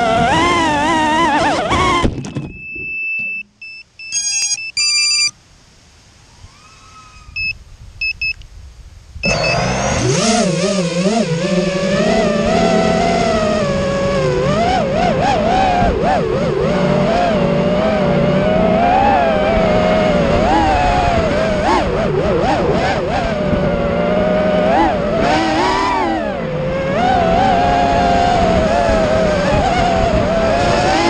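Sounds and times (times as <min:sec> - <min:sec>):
drone motors whining: 0:00.0 - 0:05.3, 0:09.2 - 0:31.0
short electronic beeps: 0:02.2 - 0:05.4, 0:07.4 - 0:08.4, 0:09.2 - 0:09.7.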